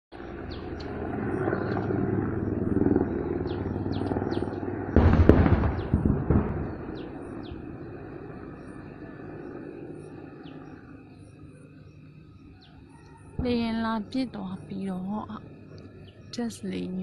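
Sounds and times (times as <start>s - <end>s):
distant helicopter drone: 0.1s - 17.0s
small birds chirping: 0.2s - 5.0s, 5.6s - 17.0s
loud gunfire: 4.9s - 7.6s.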